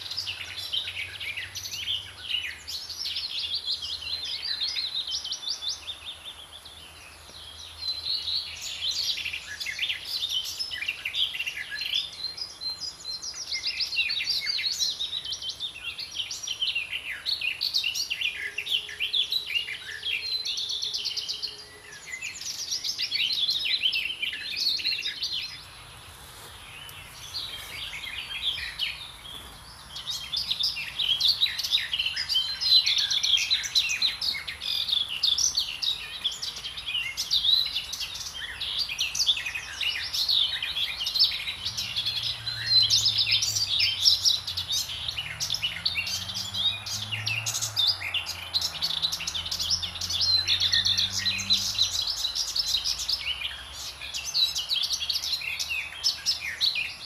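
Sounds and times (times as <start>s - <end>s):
songbirds chirping and singing: 0.0s - 57.0s.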